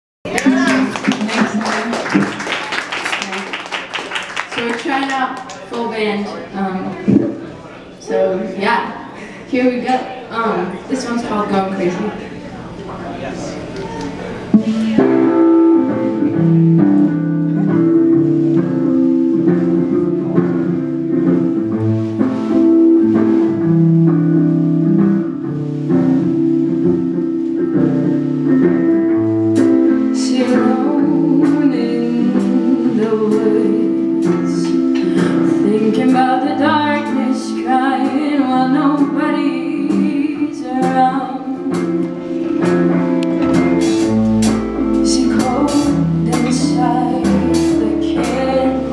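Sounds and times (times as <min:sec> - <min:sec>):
electric guitar: 0:00.3 - 0:04.2, 0:13.5 - 0:48.9
drums: 0:06.8 - 0:07.6, 0:13.6 - 0:48.9
bass guitar: 0:13.5 - 0:48.9
woman singing: 0:30.0 - 0:42.1, 0:44.9 - 0:48.9.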